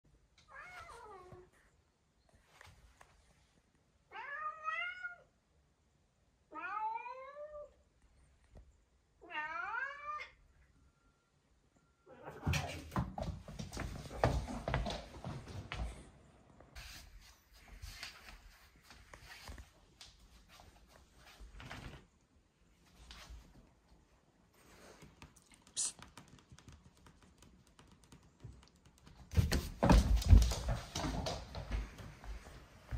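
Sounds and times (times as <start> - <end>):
cat meowing: 6.5 - 7.7, 9.2 - 10.4
thumps and scuffling: 12.3 - 16.0, 29.2 - 32.9.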